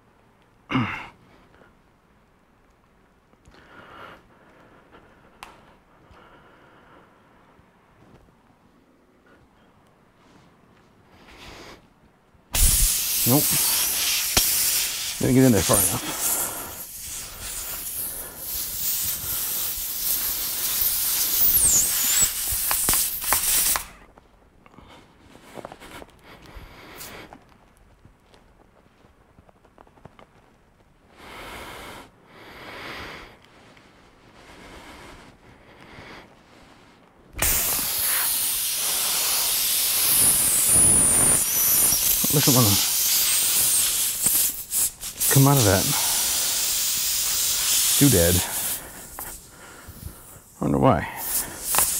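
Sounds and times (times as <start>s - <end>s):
air hissing from tire: 12.5s - 24.0s, 26.6s - 27.3s, 37.4s - 51.9s
brief high whistle: 20.7s - 23.8s.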